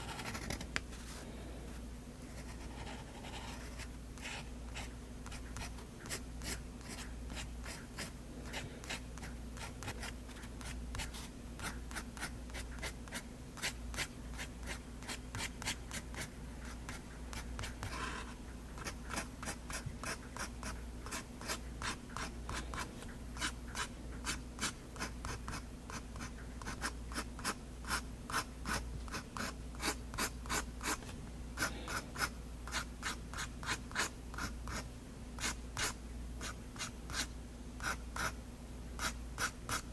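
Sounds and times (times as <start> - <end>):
fountain pen scratching on paper: 0.0 - 0.6
faint low hum: 0.0 - 39.9.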